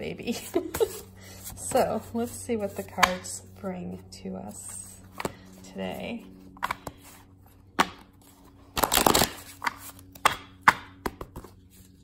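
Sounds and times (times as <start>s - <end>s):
cards shuffling: 5.0s - 12.0s.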